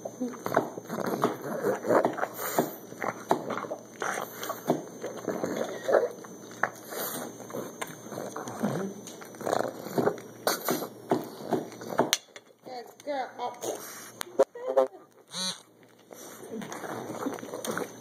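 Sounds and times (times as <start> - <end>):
dog chewing corn cob: 0.3 - 12.0, 15.7 - 18.0.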